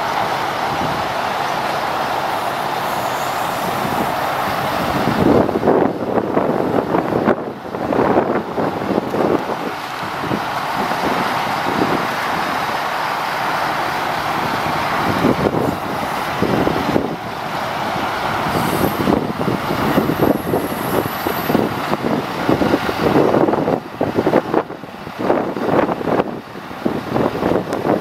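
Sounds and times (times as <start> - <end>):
wind on microphone: 0.0 - 12.9, 14.0 - 28.0
diesel engine running: 0.0 - 28.0
thin high whistle: 2.4 - 4.8.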